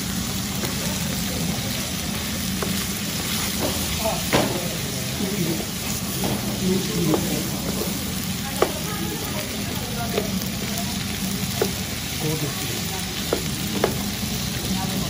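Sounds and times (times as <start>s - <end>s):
meat and peppers sizzling: 0.0s - 15.0s
spatula knocking on pan: 2.6s - 2.8s, 3.6s - 4.6s, 6.2s - 9.0s, 10.1s - 10.8s, 11.4s - 11.9s, 13.2s - 14.2s.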